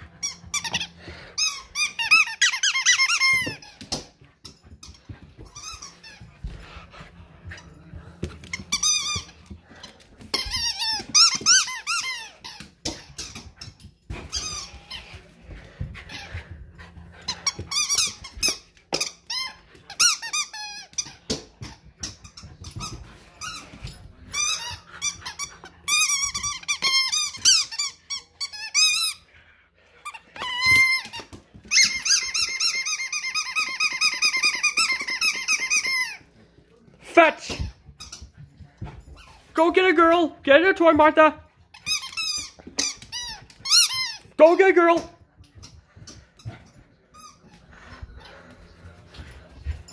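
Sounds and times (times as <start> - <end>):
squeaky dog toy squeaking: 1.4 - 4.0, 41.7 - 45.0.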